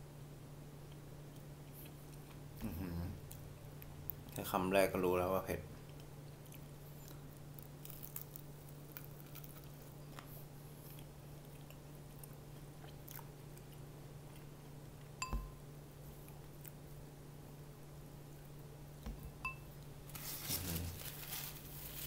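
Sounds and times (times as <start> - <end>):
steady low hum: 0.0 - 22.0
faint crunchy crackles: 5.8 - 14.7, 20.1 - 22.0
person chewing crispy chicken: 5.8 - 15.0.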